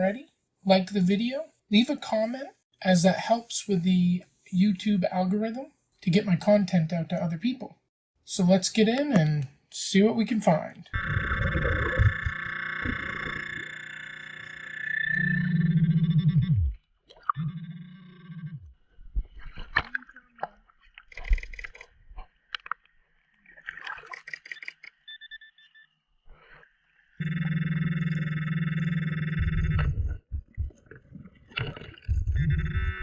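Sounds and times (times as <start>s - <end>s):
water gurgling and splashing: 11.0s - 13.4s, 23.4s - 24.5s, 29.8s - 32.5s
metal detector buzzing: 11.0s - 18.7s, 27.2s - 30.1s, 32.3s - 33.0s
scattered clicks: 21.1s - 21.9s, 24.0s - 25.1s.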